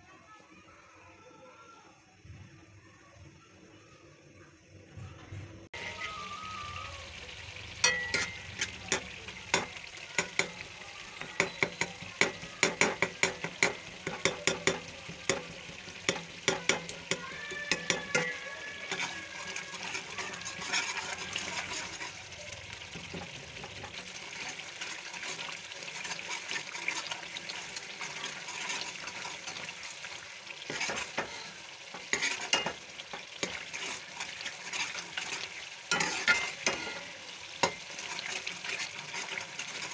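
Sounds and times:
sauce sizzling in a pan: 5.7s - 39.9s
spoon stirring: 7.8s - 22.2s, 22.9s - 39.9s.

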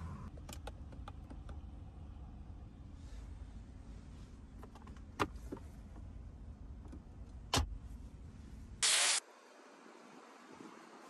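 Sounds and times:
loud burst of hiss: 8.8s - 9.2s.

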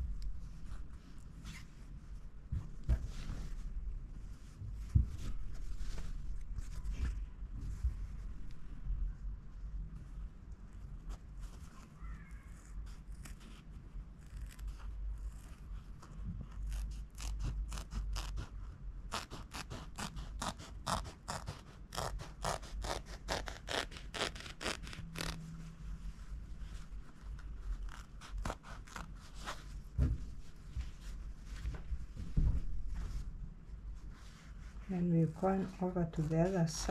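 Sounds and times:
scissors snipping fabric: 16.5s - 18.5s, 19.1s - 25.4s
soft bump: 29.9s - 31.0s, 31.6s - 33.3s.

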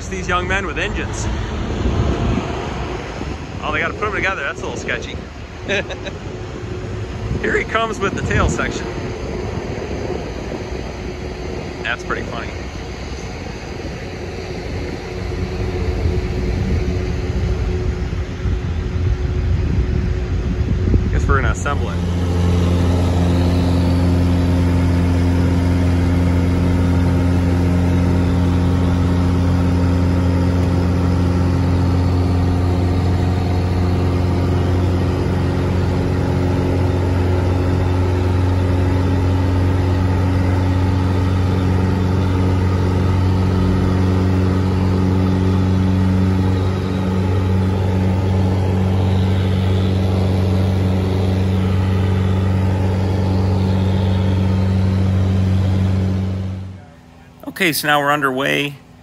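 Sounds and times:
propeller plane engine running: 0.0s - 59.0s.

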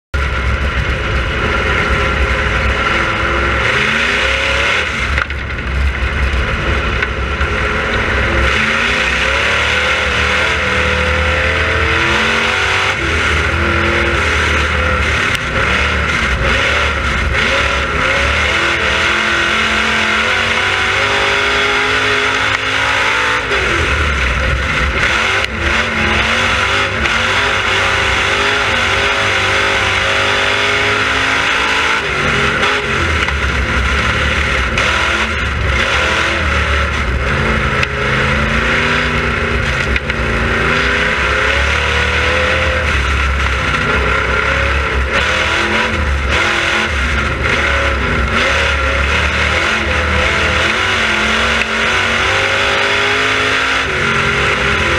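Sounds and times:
race car engine revving: 0.1s - 54.9s.

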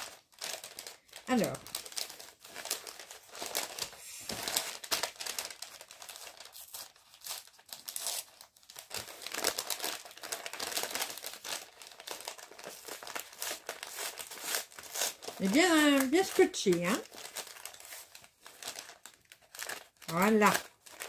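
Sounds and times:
packaging crinkling: 0.0s - 21.0s
tape tearing: 1.4s - 21.0s.

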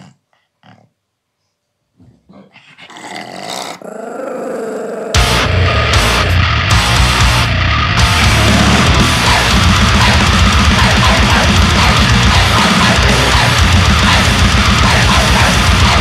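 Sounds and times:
distorted guitars and bass: 5.1s - 16.0s
fast dense drumming: 5.2s - 16.0s.

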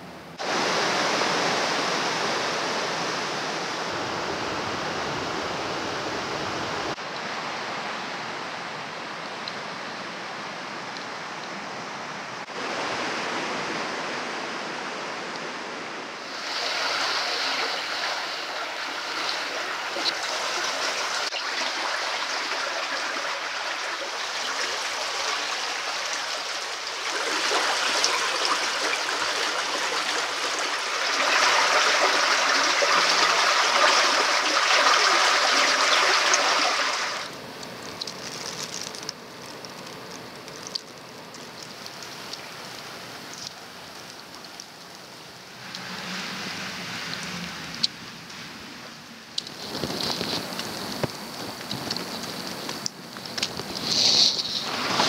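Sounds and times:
water rushing in canals: 0.0s - 55.0s
small ticks: 37.3s - 45.9s, 49.4s - 54.6s.

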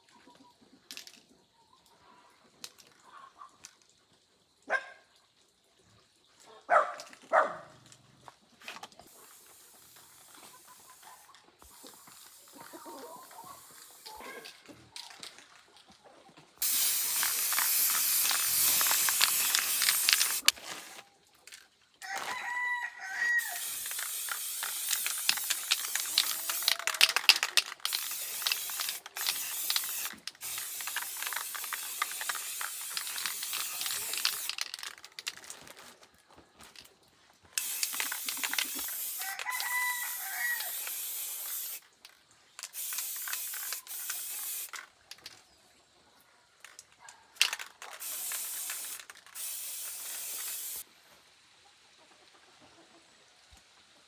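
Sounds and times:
chickens calling: 10.3s - 16.3s
loud hissing noise: 16.6s - 20.5s, 23.4s - 34.8s, 37.6s - 41.8s, 42.6s - 44.7s, 48.0s - 50.9s.

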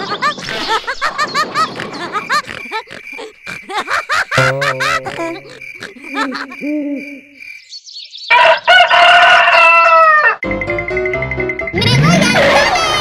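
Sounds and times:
rooster crowing: 8.3s - 10.4s.

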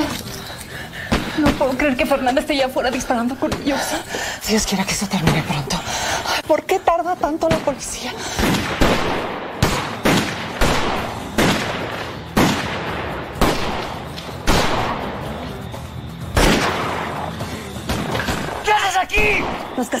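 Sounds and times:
background music: 0.0s - 20.0s
gunshots with echo: 8.4s - 15.3s, 16.4s - 17.3s.

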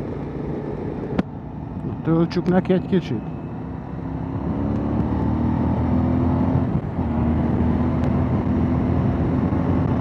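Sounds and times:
motorcycle engine accelerating: 0.0s - 10.0s
wind noise: 5.5s - 10.0s.

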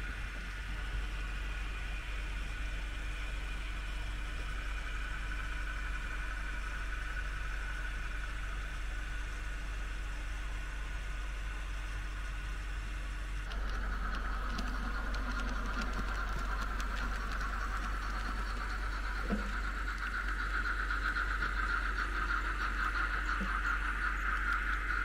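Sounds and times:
model train motor whine: 0.0s - 25.0s
wheels clicking over track joints: 13.5s - 25.0s.

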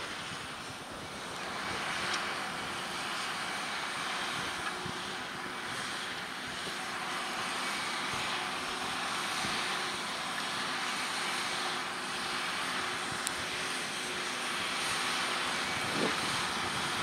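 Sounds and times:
tractor diesel engine under load: 0.0s - 17.0s.

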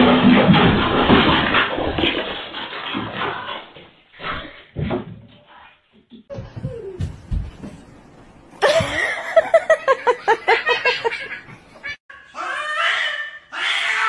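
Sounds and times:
person laughing: 8.6s - 11.6s.

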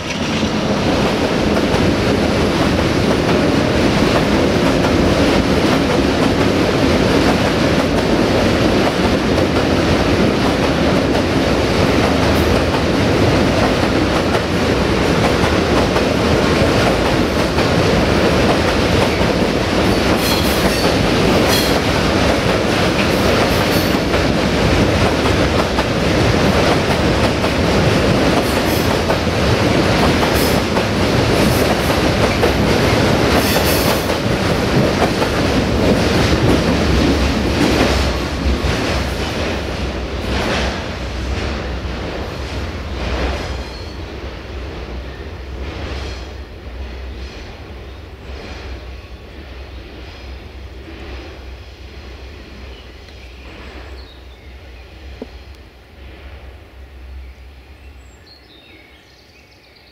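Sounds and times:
wheels clacking over rail joints: 0.0s - 41.7s
freight train rumbling: 0.0s - 59.4s.

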